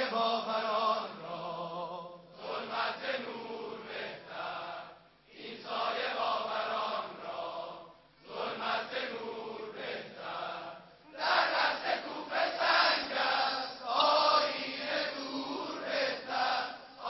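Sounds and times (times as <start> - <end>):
crowd of men chanting: 0.0 - 17.0.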